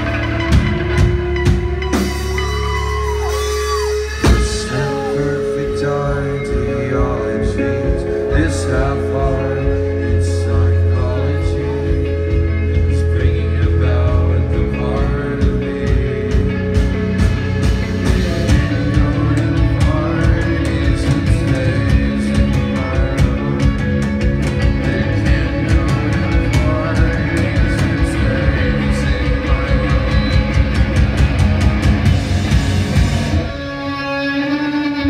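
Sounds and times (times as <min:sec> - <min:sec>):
rock band playing live: 0:00.0 - 0:35.0
drum hits: 0:04.1 - 0:05.3.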